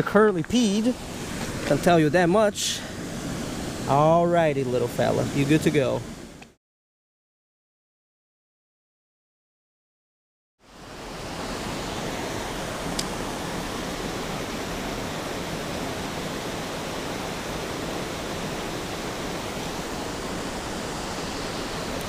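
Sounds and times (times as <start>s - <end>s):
water rushing over weir: 0.0s - 6.2s, 10.7s - 22.0s.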